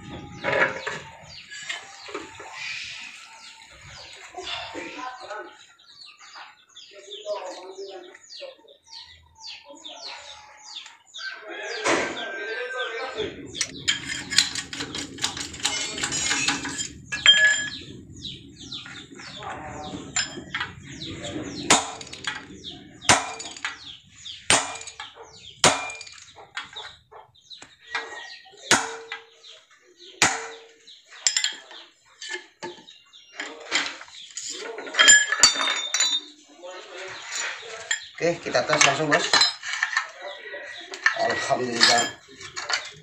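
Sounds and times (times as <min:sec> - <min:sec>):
metallic knocks and clinks: 0:13.4 - 0:27.0, 0:30.2 - 0:36.4, 0:37.2 - 0:40.2, 0:40.9 - 0:43.0.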